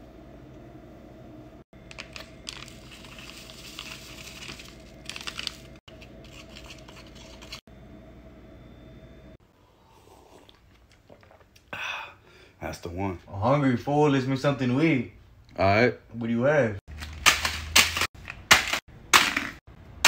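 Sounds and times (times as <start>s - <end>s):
steady low hum: 0.0s - 13.8s
packet crinkling and rustling: 1.8s - 7.6s.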